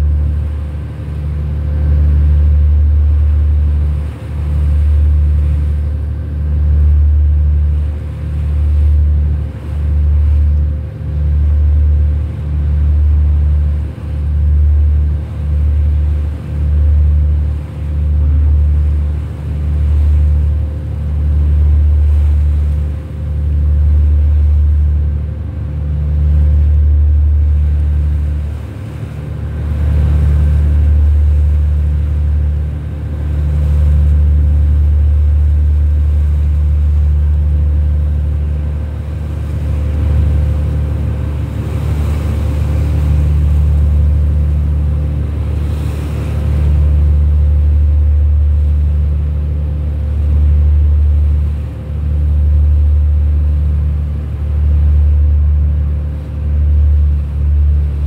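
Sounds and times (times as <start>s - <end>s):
boat engine rumbling: 0.0s - 58.0s
faint steady whine: 0.0s - 58.0s.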